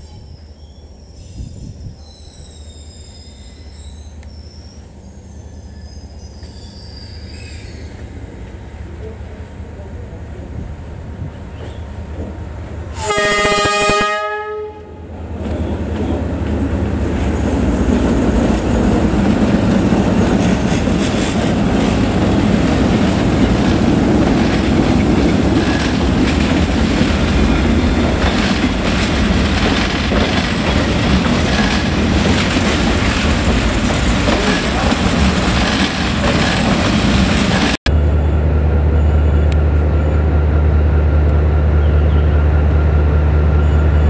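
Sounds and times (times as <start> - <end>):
train rumbling past: 0.0 - 44.0
locomotive horn blast: 12.9 - 15.1
wheels clacking over rail joints: 15.3 - 37.8.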